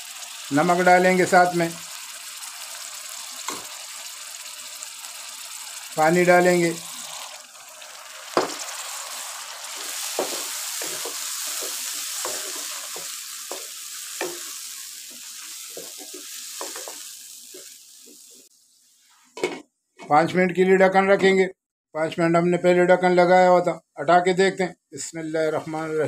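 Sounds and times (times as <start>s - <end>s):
vegetables sizzling in hot fat: 0.0s - 19.2s
wooden spatula knocking pan: 10.0s - 14.5s, 15.7s - 17.0s.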